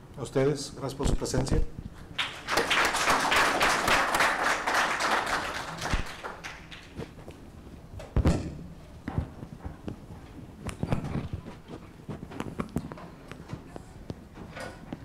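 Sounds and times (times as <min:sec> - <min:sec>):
audience applauding: 0:02.2 - 0:07.0.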